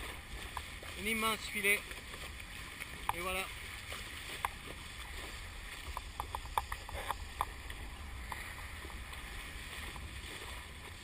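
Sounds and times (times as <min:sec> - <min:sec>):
rush of water spray: 0:00.0 - 0:11.0.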